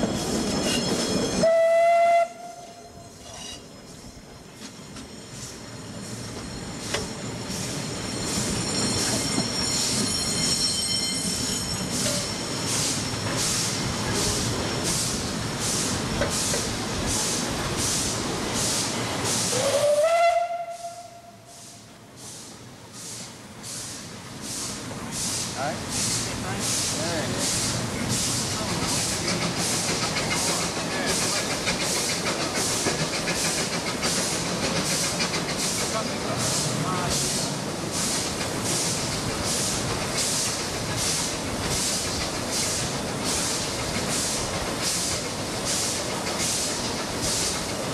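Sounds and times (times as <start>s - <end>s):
rumble of running train: 0.0s - 47.9s
steam locomotive exhaust beats: 11.2s - 47.9s.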